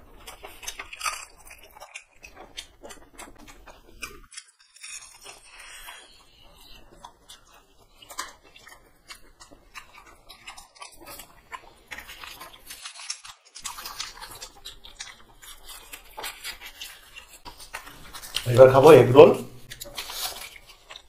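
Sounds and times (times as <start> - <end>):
people chewing and biting food: 0.0 - 21.0
mouth clicks and smacks: 0.2 - 4.3.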